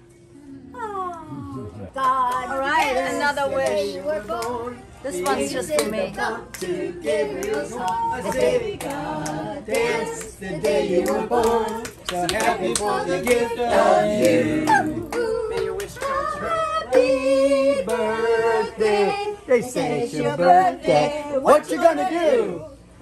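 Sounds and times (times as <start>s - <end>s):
people clapping: 2.0s - 18.2s
group singing unaccompanied: 2.0s - 22.8s.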